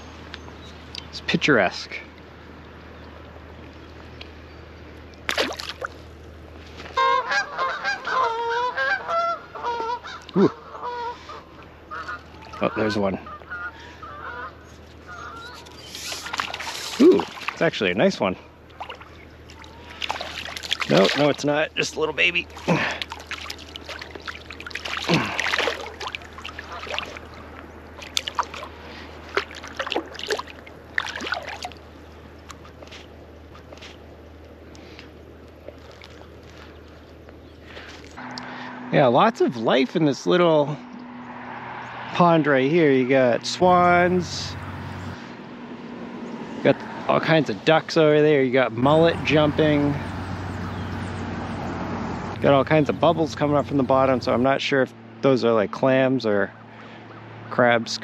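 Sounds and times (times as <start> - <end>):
fish splashing into water: 5.2 - 6.1, 15.9 - 17.6, 18.7 - 21.5, 22.4 - 32.8
waterfowl calling: 6.8 - 17.6, 18.7 - 33.8.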